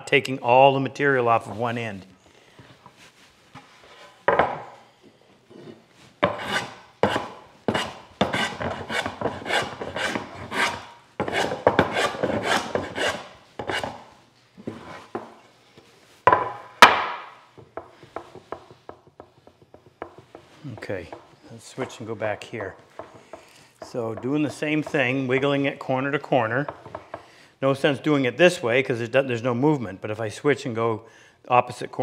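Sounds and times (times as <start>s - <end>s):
hand plane scraping across board: 5.5s - 15.4s
sharp wooden knocks: 6.2s - 13.9s, 16.3s - 21.4s.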